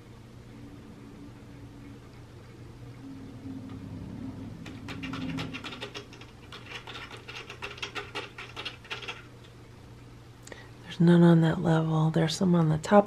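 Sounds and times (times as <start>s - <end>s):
cat treats clicking in plastic feeder: 5.0s - 9.2s.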